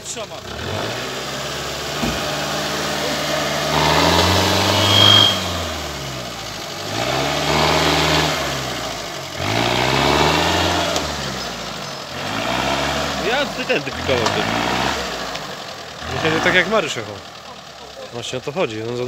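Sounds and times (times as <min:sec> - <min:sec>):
car engine revving: 0:00.0 - 0:19.0
brief high squeak: 0:04.7 - 0:05.6.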